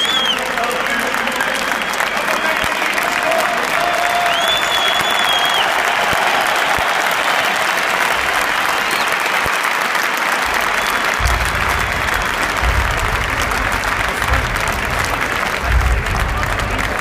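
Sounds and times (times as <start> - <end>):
stadium crowd applauding: 0.0 - 17.0
low rumble: 10.5 - 17.0.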